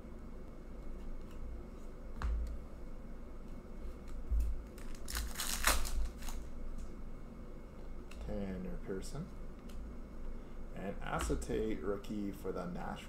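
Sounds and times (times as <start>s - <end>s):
foil wrapper tearing and crinkling: 4.8s - 6.4s.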